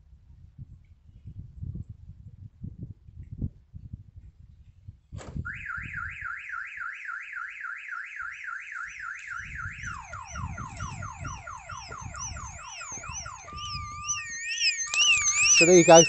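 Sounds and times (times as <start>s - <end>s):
warbling alarm siren: 5.5s - 16.0s.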